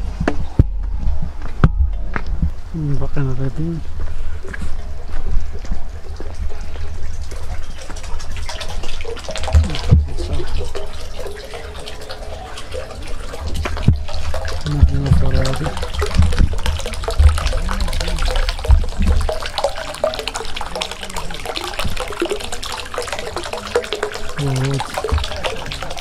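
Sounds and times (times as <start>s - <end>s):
low microphone rumble: 0.0s - 7.6s, 13.4s - 19.4s
fountain splashing into basin: 2.7s - 26.0s.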